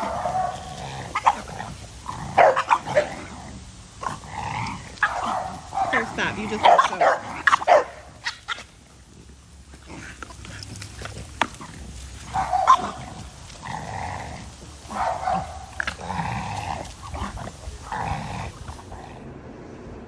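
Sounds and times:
dog barking short calls: 5.0 - 8.4, 14.9 - 15.8.

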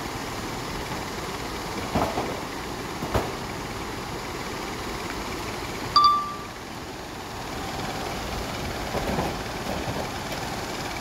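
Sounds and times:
short electronic chime: 6.0 - 6.5.

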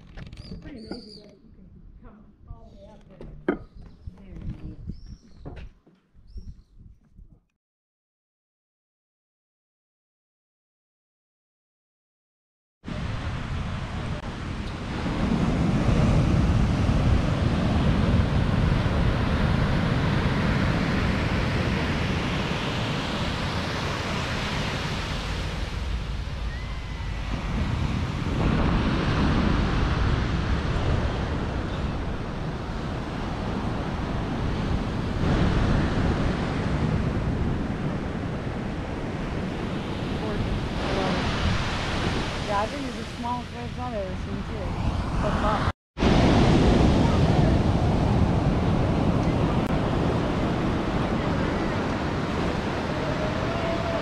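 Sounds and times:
wind rumbling on microphone: 0.0 - 7.5, 12.9 - 54.0
ocean surf breaking: 12.9 - 54.0.

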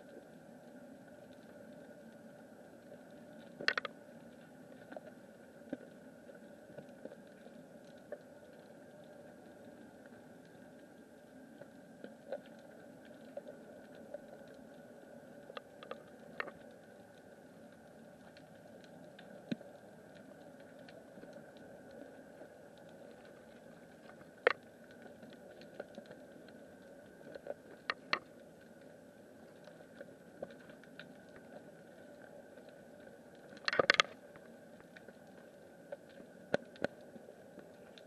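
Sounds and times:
crackling clicks: 0.0 - 38.0
sharp underwater clicks: 3.4 - 5.0, 15.4 - 16.9, 18.3 - 28.8, 30.4 - 38.0.

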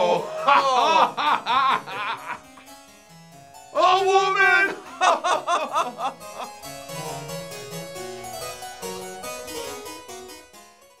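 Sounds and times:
man laughing heartily: 0.0 - 2.6, 4.7 - 6.5
harpsichord music: 0.0 - 11.0.

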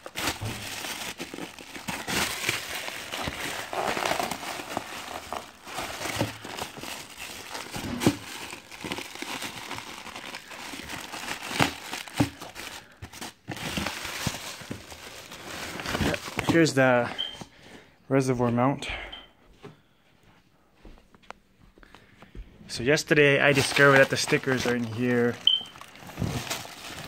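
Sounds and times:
sharp plastic crackles: 0.0 - 16.8, 23.4 - 27.0
plastic wrap crinkling: 0.0 - 17.4, 23.0 - 27.0.

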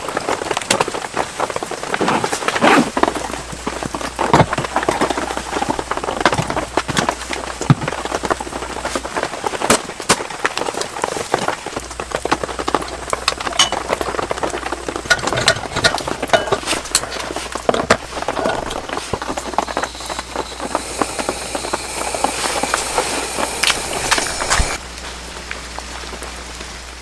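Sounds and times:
lantern burner hissing: 11.9 - 25.4
lantern metal clicks and taps: 13.3 - 14.0, 15.0 - 20.3.

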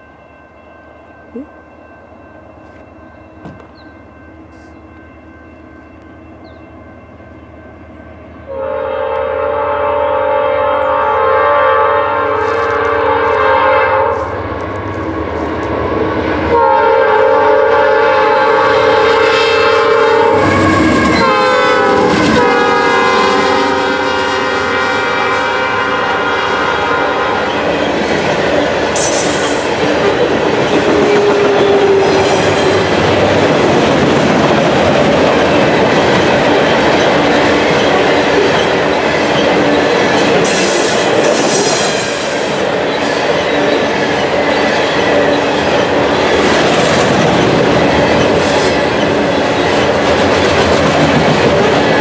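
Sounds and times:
locomotive engines rumbling: 1.2 - 52.0
train wheels on rail: 2.5 - 5.1, 10.7 - 52.0
train air horn: 8.5 - 14.4, 16.5 - 27.6.

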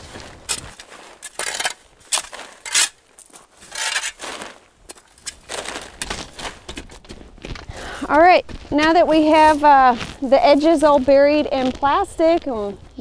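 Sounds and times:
shovel scraping soil: 0.0 - 7.0, 8.1 - 12.6
dirt falling on plastic sheet: 0.0 - 13.0.

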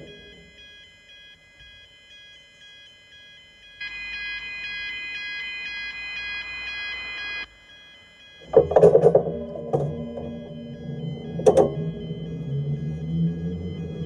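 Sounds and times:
low hum: 0.0 - 0.6, 8.4 - 14.0
two-tone level crossing alarm: 0.0 - 14.0.

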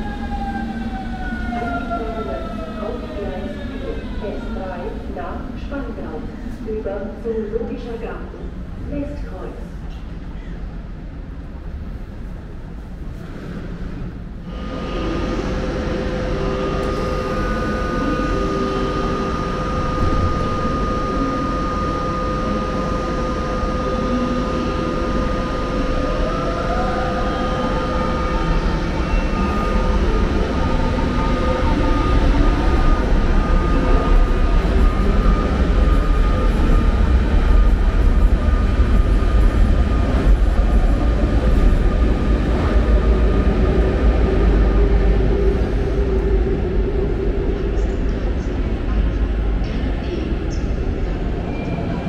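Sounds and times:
electric train hum: 0.0 - 52.0
train cars rolling rumble: 0.0 - 52.0
train motor whine: 14.5 - 47.7.

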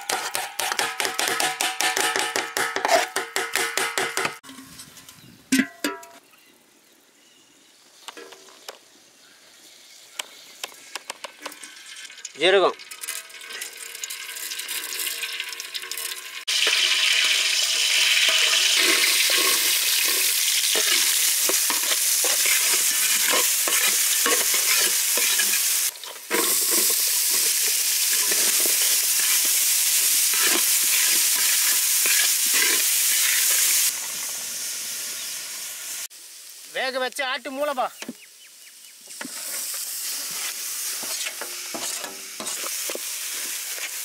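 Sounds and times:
spatula scraping pan: 0.0 - 5.1, 18.2 - 33.9, 39.2 - 44.0
food sizzling in hot oil: 7.7 - 44.0.

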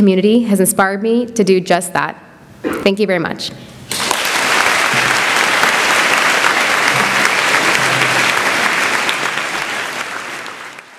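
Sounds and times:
audience applauding: 3.9 - 10.9.

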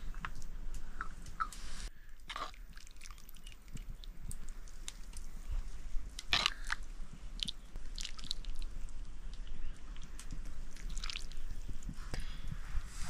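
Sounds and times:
person chewing noodles: 2.2 - 11.7.

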